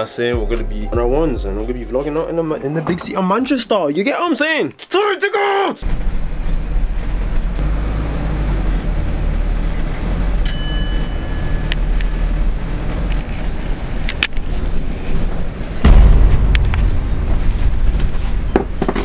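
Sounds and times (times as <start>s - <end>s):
high ringing tone: 10.5s - 11.7s.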